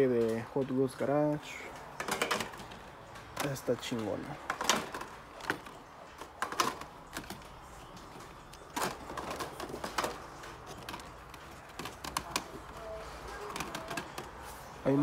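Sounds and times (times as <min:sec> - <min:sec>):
plastic clicks and rattles: 0:01.8 - 0:07.6, 0:13.4 - 0:14.4.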